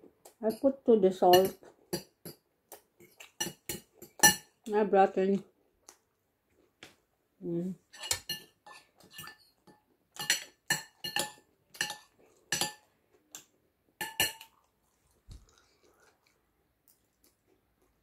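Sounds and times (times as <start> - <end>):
metal spoon clinking against dish: 3.2 - 4.5, 8.0 - 12.9, 14.0 - 14.6.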